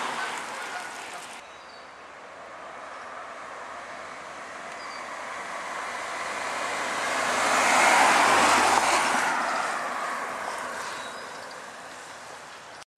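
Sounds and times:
car engine passing: 0:02.3 - 0:12.4.

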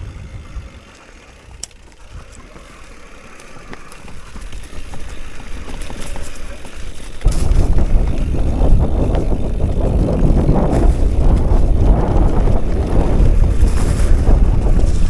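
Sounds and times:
wind rumble on microphone: 0:00.0 - 0:00.9, 0:07.2 - 0:15.0
bike tyres rolling over leaves: 0:00.0 - 0:15.0.

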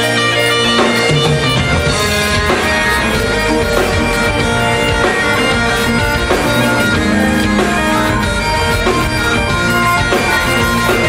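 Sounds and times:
bagpipes playing: 0:00.0 - 0:11.0
drums: 0:00.0 - 0:11.0
electric guitars: 0:00.0 - 0:11.0.

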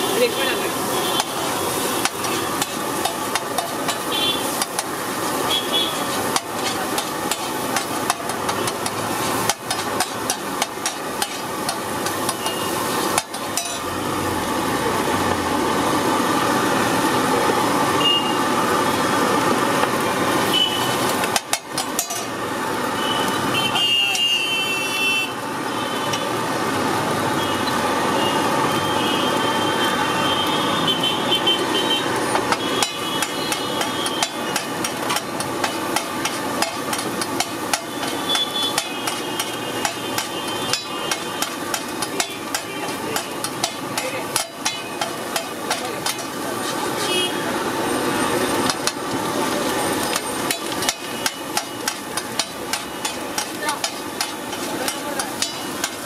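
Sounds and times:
metal spatula scraping a griddle: 0:01.2 - 0:04.9, 0:05.5 - 0:13.9, 0:32.6 - 0:47.2, 0:49.9 - 0:56.0.

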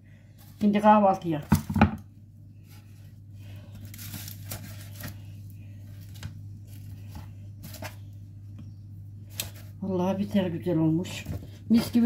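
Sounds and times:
steady low hum: 0:00.0 - 0:12.0
rustling and taps on baking tray: 0:01.4 - 0:02.1.

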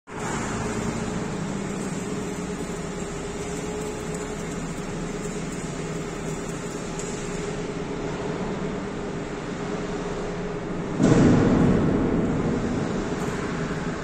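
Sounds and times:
arc welding crackle: 0:00.1 - 0:09.4
constant mechanical hum: 0:00.1 - 0:14.0.

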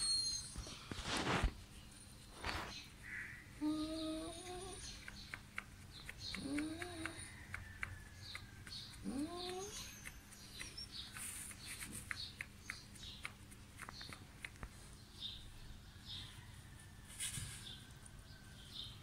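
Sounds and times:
dog whining: 0:00.0 - 0:00.8, 0:03.6 - 0:05.1, 0:06.2 - 0:07.3, 0:09.0 - 0:11.1
small birds chirping: 0:00.0 - 0:16.6.

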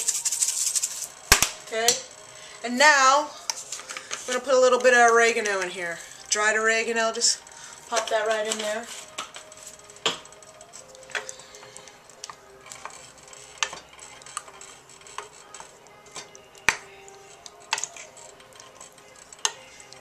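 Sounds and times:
spoon stirring thick sauce: 0:09.0 - 0:20.0.

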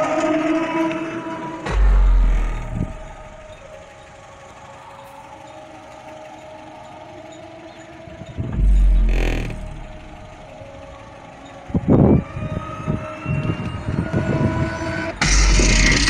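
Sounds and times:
deep bass note from subwoofer: 0:01.7 - 0:03.7, 0:08.4 - 0:10.5
punchy bass hits: 0:01.7 - 0:03.7, 0:08.6 - 0:10.4.

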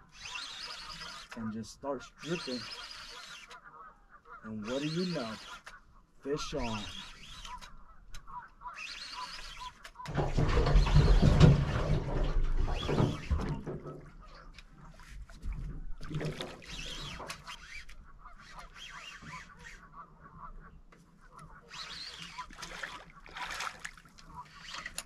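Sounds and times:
fish splashing at surface: 0:22.5 - 0:24.2.

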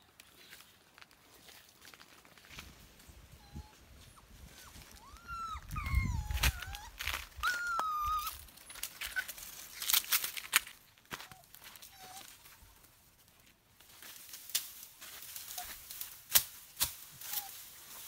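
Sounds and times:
animal whining and whimpering: 0:03.3 - 0:09.3, 0:11.2 - 0:12.5, 0:17.2 - 0:17.6.

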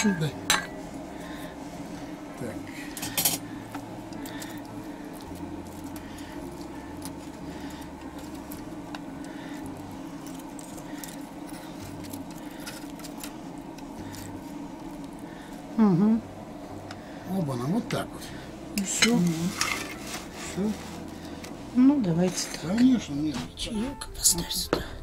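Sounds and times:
fork scraping wire grill basket: 0:18.9 - 0:21.3.

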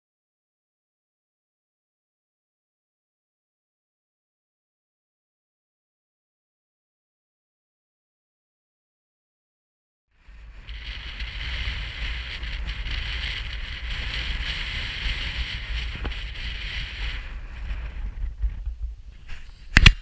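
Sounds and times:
wind buffeting microphone: 0:10.2 - 0:20.0.

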